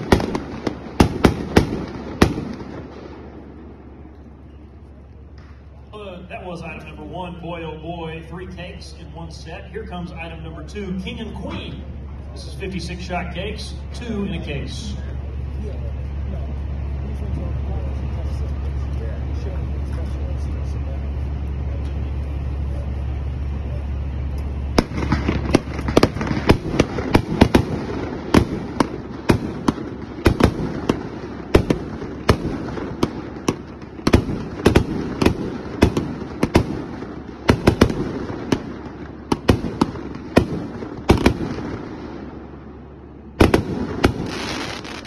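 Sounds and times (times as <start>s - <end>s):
firework shells banging: 0.0s - 3.5s, 24.4s - 42.5s, 43.4s - 45.0s
low background rumble: 0.0s - 45.0s.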